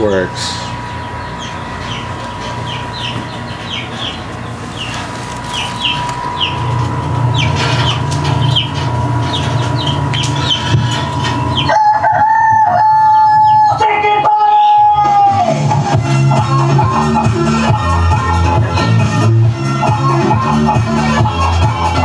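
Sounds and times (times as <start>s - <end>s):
chickens peeping: 0.0s - 15.1s
dance music: 13.8s - 22.0s.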